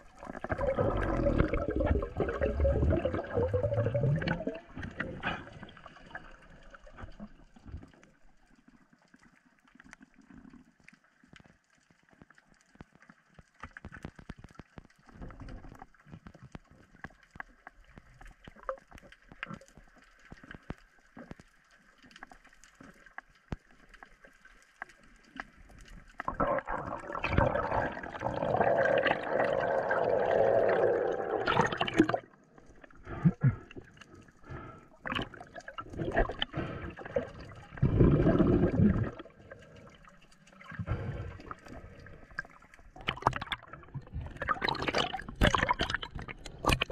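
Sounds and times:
water rushing and gurgling: 0:00.0 - 0:08.3, 0:25.3 - 0:46.9
underwater clicks and knocks: 0:11.2 - 0:21.5, 0:43.0 - 0:46.9.

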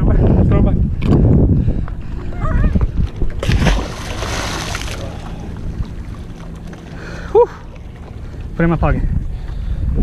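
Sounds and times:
wind noise on microphone: 0:00.0 - 0:04.6, 0:08.6 - 0:10.0
fish splashing into water: 0:03.4 - 0:05.5.

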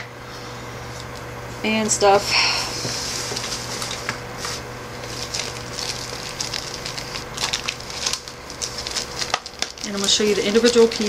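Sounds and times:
rustling and small crackles: 0:02.8 - 0:11.0.

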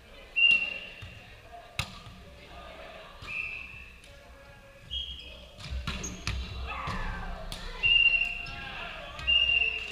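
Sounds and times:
players' voices: 0:00.0 - 0:09.9
shoe squeaks: 0:04.9 - 0:06.4.

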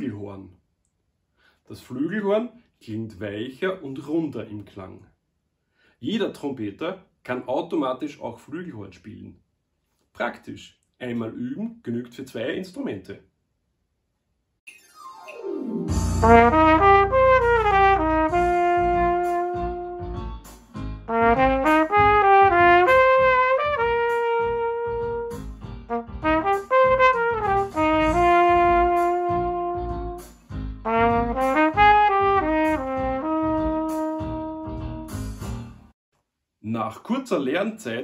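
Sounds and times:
player breathing: 0:05.6 - 0:06.0
flugelhorn melody: 0:15.4 - 0:20.3, 0:21.0 - 0:35.1.

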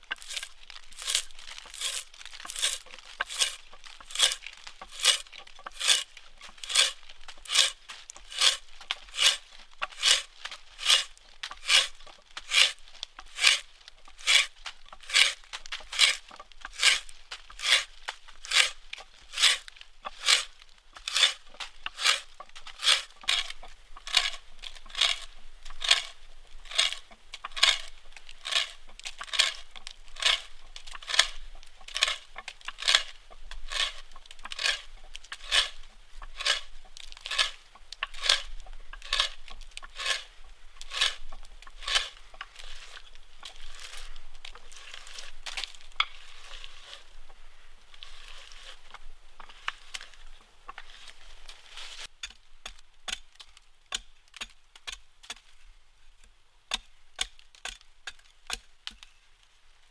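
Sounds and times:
hand auger rasping into wood: 0:00.1 - 0:47.1.

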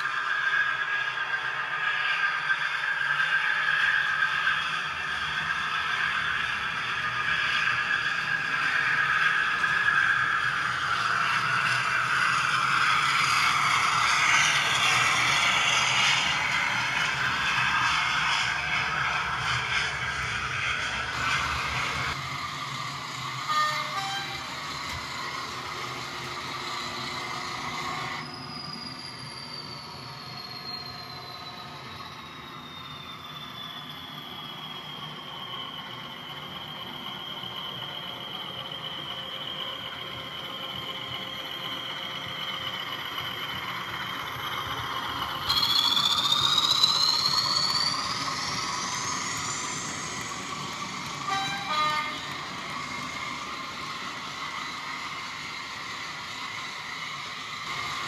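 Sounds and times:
model locomotive whine: 0:00.0 - 0:58.0
train horn toots: 0:23.5 - 0:24.5, 0:51.2 - 0:52.3.

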